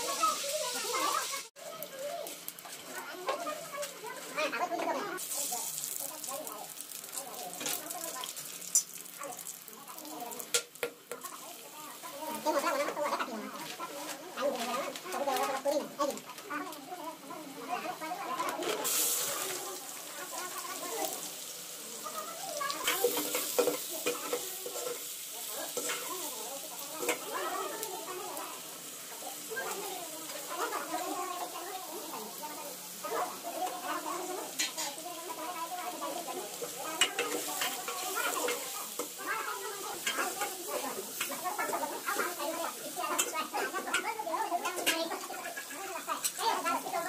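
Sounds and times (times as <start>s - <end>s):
food sizzling in a pot: 0.0s - 47.0s.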